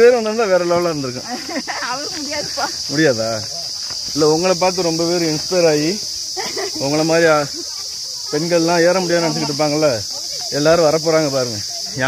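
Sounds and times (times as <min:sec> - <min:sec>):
people talking: 0:00.0 - 0:03.6, 0:04.2 - 0:12.0
high-pitched insect chorus: 0:00.0 - 0:12.0.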